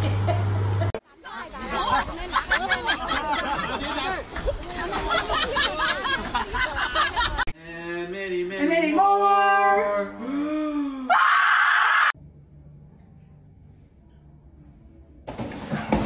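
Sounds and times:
breathy burst of voice: 10.2s - 11.2s.

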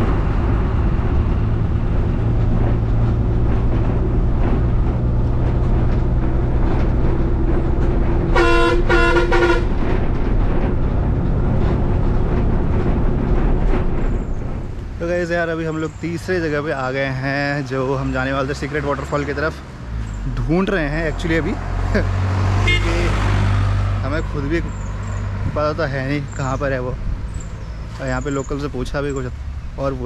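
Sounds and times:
bus engine running: 0.0s - 30.0s
horn blasts: 8.3s - 9.9s, 22.6s - 23.3s.

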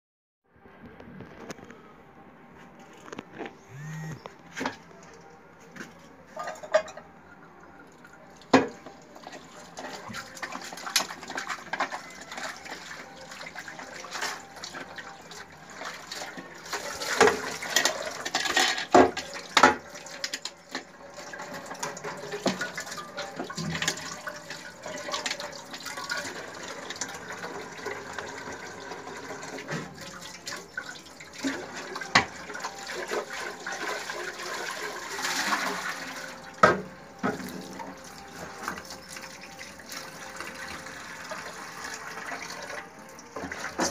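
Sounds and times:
cookware clanking against sink: 6.4s - 7.1s.

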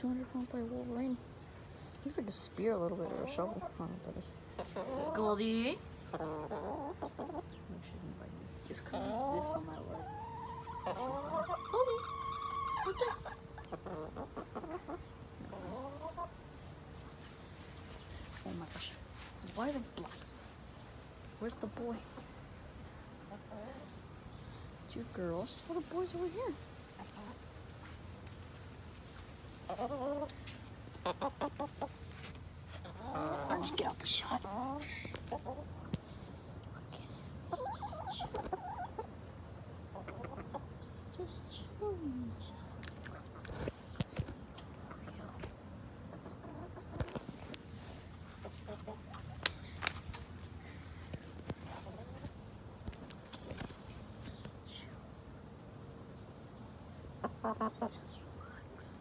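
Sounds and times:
chickens clucking: 0.0s - 59.0s
warbling chicken calls: 9.2s - 16.4s.

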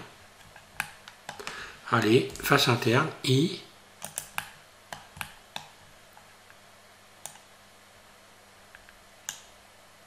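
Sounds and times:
computer mouse clicking: 0.4s - 1.5s, 4.0s - 6.3s, 7.2s - 7.5s, 8.8s - 9.5s.

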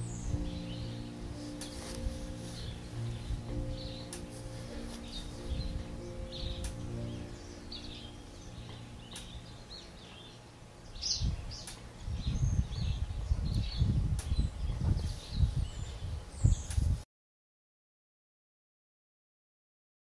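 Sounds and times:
low rumbling on microphone: 0.0s - 17.0s
small birds chirping: 0.0s - 17.0s.

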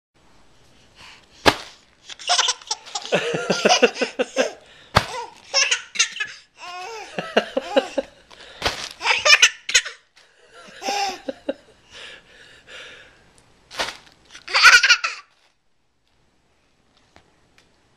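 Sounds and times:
sharp smacks: 1.4s - 1.8s, 4.9s - 5.2s
baby laughing: 2.0s - 8.1s, 9.0s - 11.4s, 14.4s - 15.3s.

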